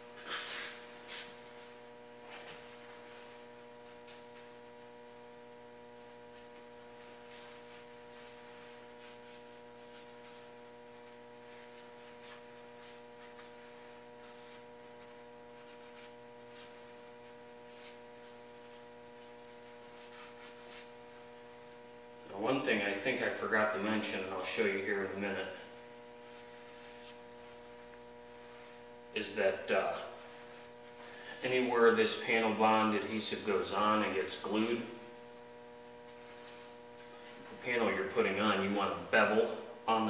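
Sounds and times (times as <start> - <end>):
faint steady tonal hum: 0.0 - 40.0
faint scuffs and taps: 6.4 - 21.0.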